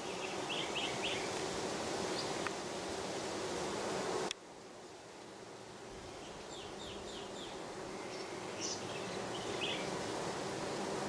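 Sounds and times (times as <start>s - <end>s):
bees buzzing: 0.0s - 11.0s.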